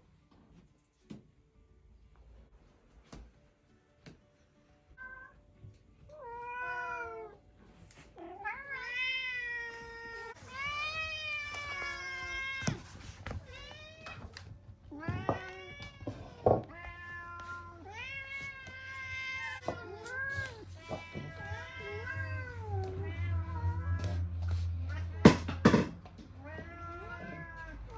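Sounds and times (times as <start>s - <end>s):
cats meowing: 4.9s - 27.9s.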